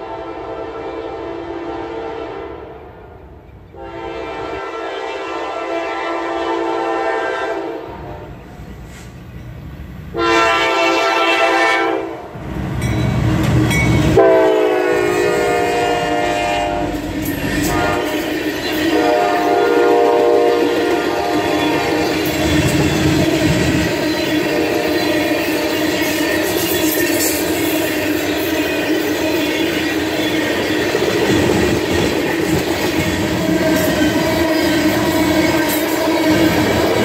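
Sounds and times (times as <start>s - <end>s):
locomotive horn blasts: 0.0s - 2.7s, 3.7s - 8.4s, 10.1s - 12.2s, 14.1s - 17.0s, 17.6s - 22.2s, 23.9s - 27.3s, 33.2s - 36.6s
train wheels rolling and clattering: 12.4s - 14.3s, 16.8s - 37.0s.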